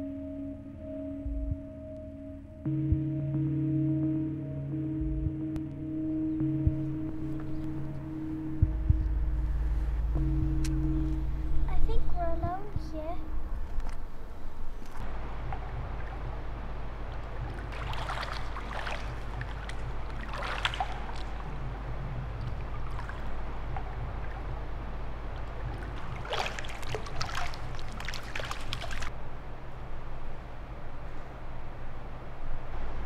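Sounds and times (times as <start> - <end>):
steady low hum: 0.0 - 33.0
feet splashing in pool water: 14.8 - 29.1.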